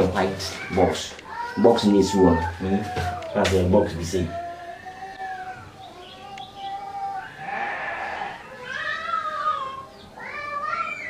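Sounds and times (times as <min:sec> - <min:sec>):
drawn-out animal calls: 0:05.1 - 0:11.0.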